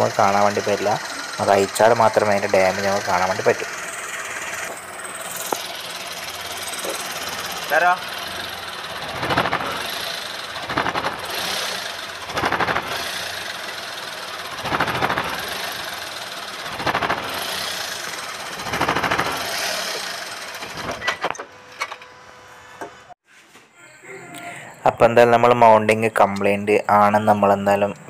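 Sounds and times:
rattling judder: 0:00.0 - 0:21.0
car engine running under load: 0:00.0 - 0:23.1.

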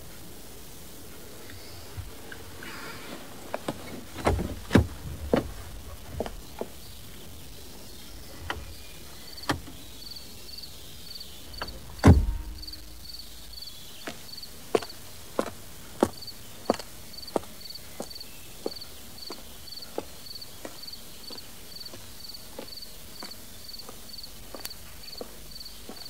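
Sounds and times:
knocks and thuds: 0:11.6 - 0:13.4
heavy thud with low rumble: 0:11.6 - 0:13.6.

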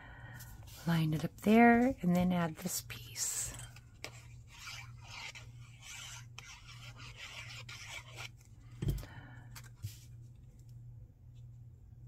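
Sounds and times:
glue bottle scratching on cardstock: 0:04.0 - 0:08.4.

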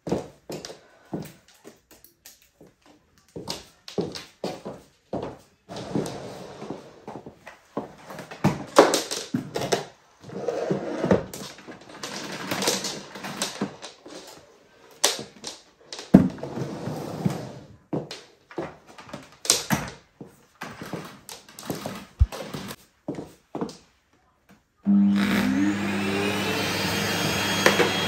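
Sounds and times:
high heels on laminate floor: 0:20.2 - 0:23.8
vacuum hose and wand knocking: 0:20.8 - 0:22.8.

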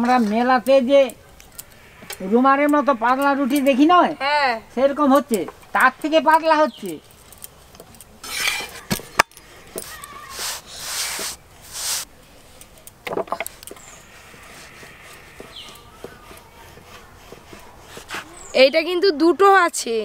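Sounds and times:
bread rustling and scraping: 0:06.8 - 0:12.1, 0:13.3 - 0:18.8.

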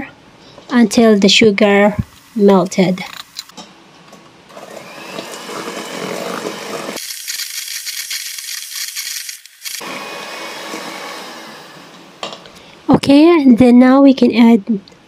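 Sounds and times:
electric hand mixer whirring: 0:04.5 - 0:12.0.

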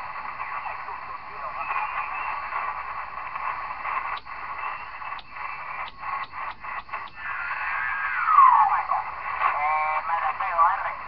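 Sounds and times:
radio static hiss: 0:00.0 - 0:11.0
radio whistle falling in pitch: 0:07.2 - 0:09.1.

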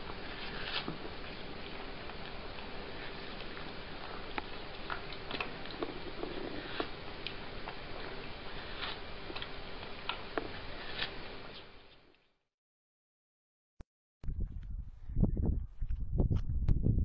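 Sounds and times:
cat chewing watermelon: 0:00.0 - 0:11.2
steady background hiss: 0:00.0 - 0:11.9.

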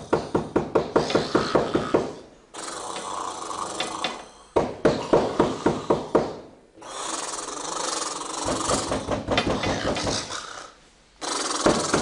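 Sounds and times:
man snoring: 0:01.2 - 0:04.4, 0:06.8 - 0:09.1, 0:09.7 - 0:12.0
hissing breath: 0:09.8 - 0:12.0.

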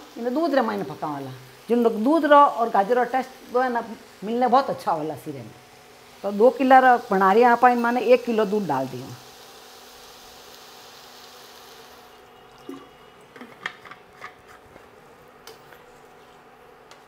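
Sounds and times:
milk hissing in hot pan: 0:00.0 - 0:13.3.

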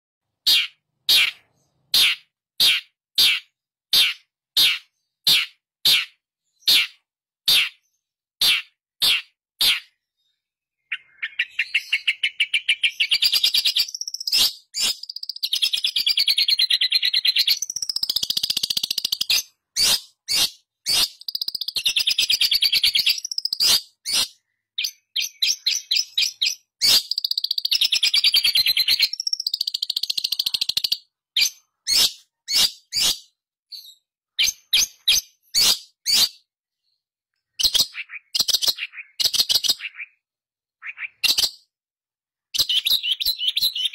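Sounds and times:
bird chattering song: 0:00.4 - 0:41.7, 0:42.5 - 0:43.9.

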